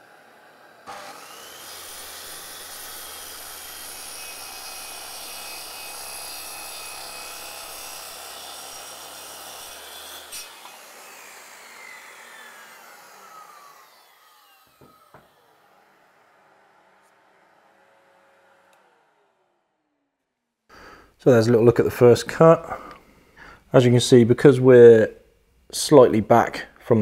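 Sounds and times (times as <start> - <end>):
circular saw cutting wood: 0.0 - 20.0
saw switch click: 18.7 - 18.9.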